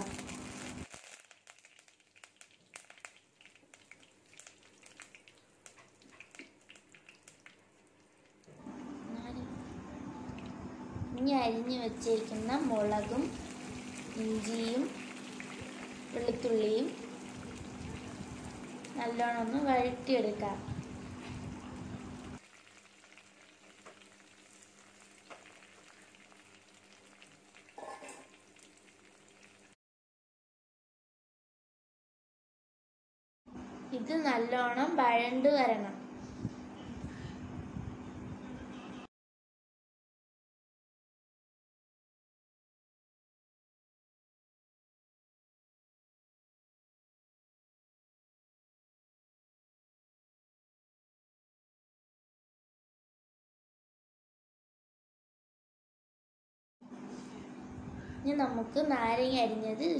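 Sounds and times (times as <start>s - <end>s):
spices crackling in hot oil: 0.0s - 8.5s, 11.5s - 29.8s.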